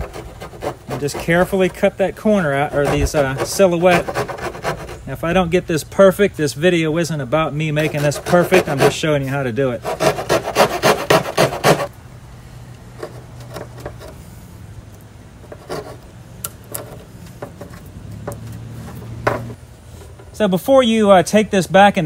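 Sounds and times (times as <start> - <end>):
hand saw rasping through wood: 0.0 - 5.2, 7.8 - 11.9.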